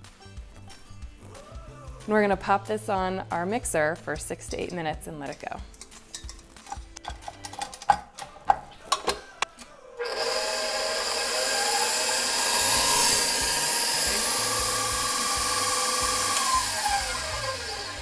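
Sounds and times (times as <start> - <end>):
stand mixer motor whining: 10.0 - 18.0.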